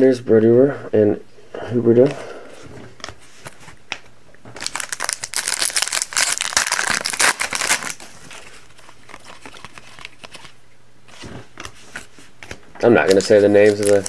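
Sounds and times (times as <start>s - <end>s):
foil wrapper crinkling: 4.6s - 10.6s, 13.0s - 14.0s.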